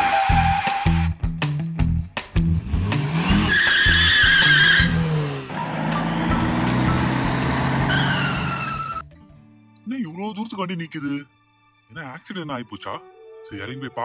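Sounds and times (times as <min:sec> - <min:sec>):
car engine revving: 0:02.5 - 0:09.0
tyres squealing in a skid: 0:03.2 - 0:06.5, 0:07.7 - 0:09.0.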